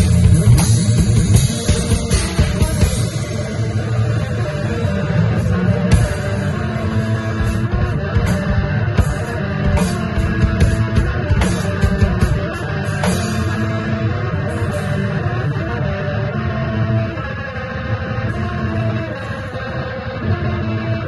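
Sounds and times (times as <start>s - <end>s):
steady drumming: 0.0s - 15.2s
electric guitar sustained notes: 0.0s - 21.0s.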